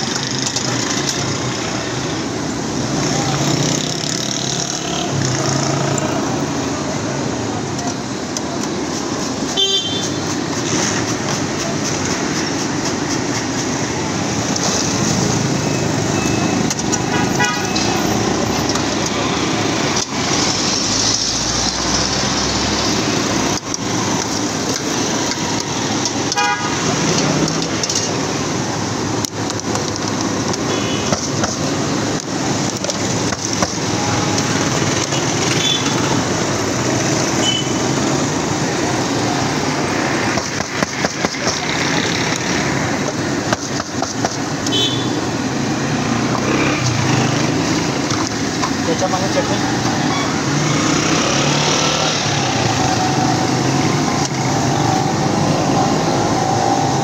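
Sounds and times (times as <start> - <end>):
street traffic noise: 0.0 - 57.0
car horn toots: 9.6 - 10.1, 17.1 - 17.8, 26.4 - 26.8.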